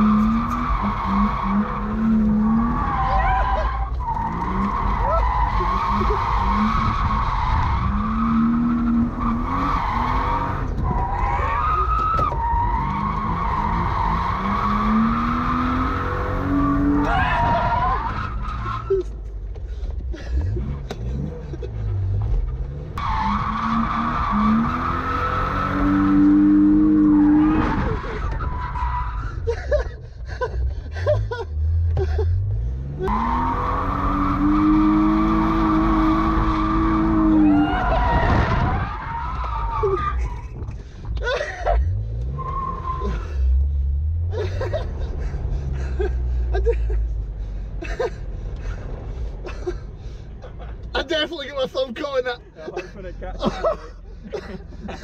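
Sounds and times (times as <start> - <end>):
car engine revving: 0.0 - 19.2, 20.4 - 29.2, 31.3 - 47.6.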